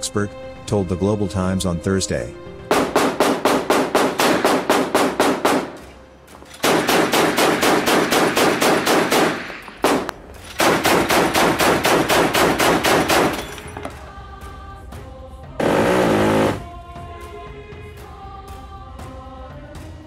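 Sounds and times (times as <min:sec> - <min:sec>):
machine gun firing bursts: 0:02.7 - 0:05.8, 0:06.6 - 0:13.4.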